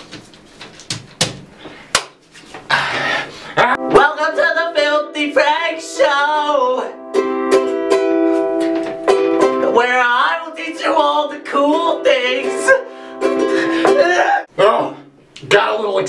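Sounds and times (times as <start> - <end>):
man singing: 3.6 - 7.0, 9.6 - 14.5
ukulele strumming: 3.6 - 14.4.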